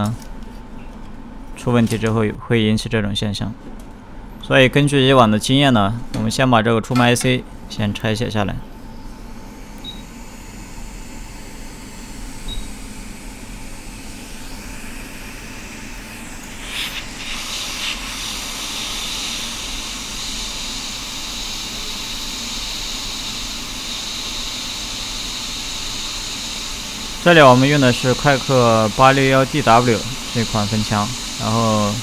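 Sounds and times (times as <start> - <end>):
hot air nozzle hissing: 9.6 - 32.0
short beeps: 9.8 - 10.1.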